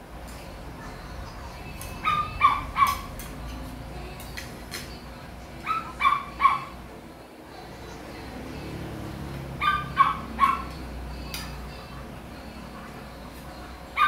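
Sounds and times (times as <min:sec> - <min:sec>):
small dog yapping: 0:09.6 - 0:10.7.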